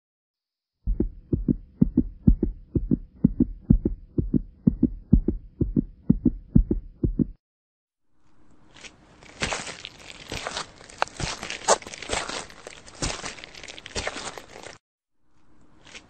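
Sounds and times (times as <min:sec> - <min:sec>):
heartbeat thumps: 0:00.9 - 0:07.4.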